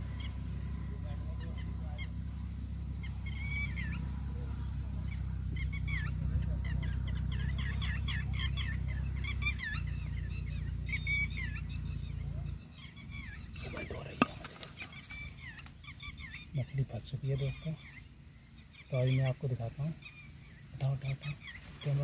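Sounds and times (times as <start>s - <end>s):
birds calling: 0.0s - 22.0s
steady low rumble: 0.0s - 22.0s.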